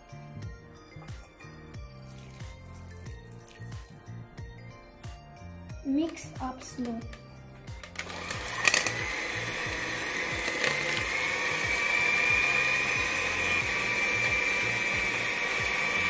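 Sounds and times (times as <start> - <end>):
electric hand mixer whirring: 7.8 - 16.0.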